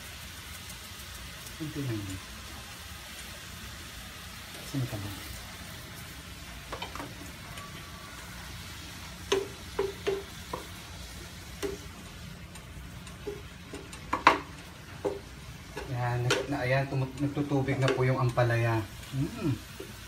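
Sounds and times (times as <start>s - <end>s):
vegetables sizzling in a frying pan: 0.0s - 20.0s
spatula knocking and scraping pan: 6.7s - 7.3s, 9.2s - 10.9s, 11.5s - 12.0s, 13.1s - 18.6s.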